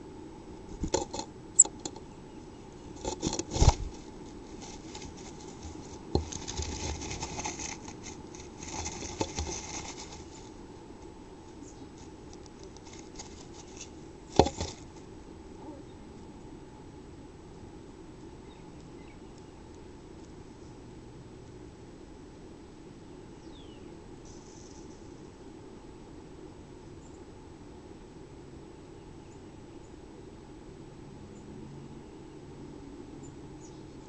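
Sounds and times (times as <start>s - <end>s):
faint steady hum: 0.0s - 34.0s
bird scratching and tapping: 0.8s - 2.0s, 3.0s - 10.6s, 12.0s - 14.8s
nest lining rustling: 3.0s - 10.6s, 12.6s - 14.9s.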